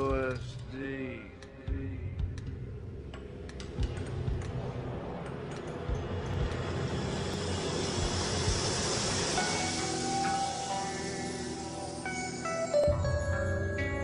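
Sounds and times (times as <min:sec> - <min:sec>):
low rumbling drone: 0:00.4 - 0:13.1
rising whoosh-like hiss: 0:04.6 - 0:12.8.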